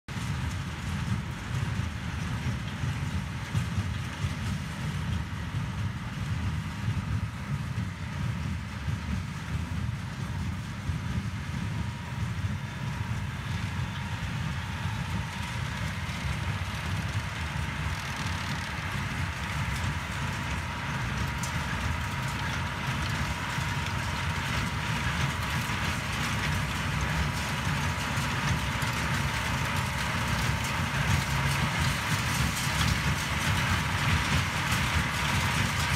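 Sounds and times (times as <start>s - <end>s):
tractor engine under load: 9.8s - 35.9s
baler working: 11.7s - 35.9s.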